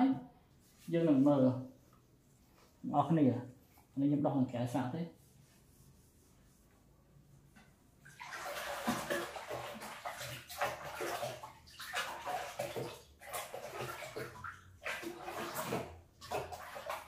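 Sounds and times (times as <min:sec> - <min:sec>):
water sloshing and splashing: 0:07.8 - 0:17.0.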